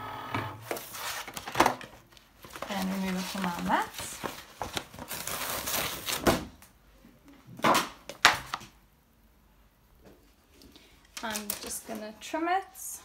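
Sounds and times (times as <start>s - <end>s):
plastic sheet crackling rustle: 0.7s - 6.4s.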